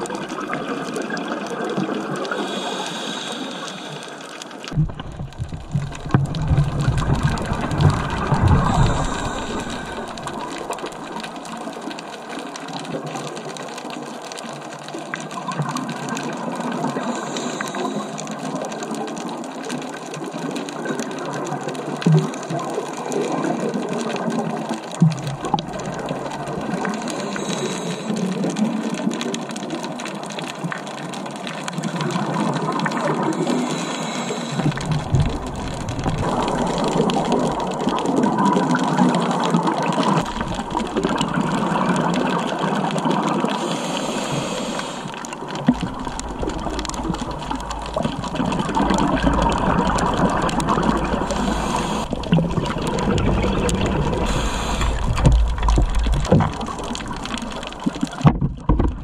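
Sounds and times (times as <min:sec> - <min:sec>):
underwater exhaled bubbles gurgling: 0:00.0 - 0:59.0
regulator inhalation hiss: 0:02.3 - 0:04.3, 0:08.6 - 0:10.4, 0:17.0 - 0:18.2, 0:27.0 - 0:28.2, 0:33.4 - 0:34.6, 0:43.6 - 0:45.2, 0:51.1 - 0:52.1, 0:54.2 - 0:55.3.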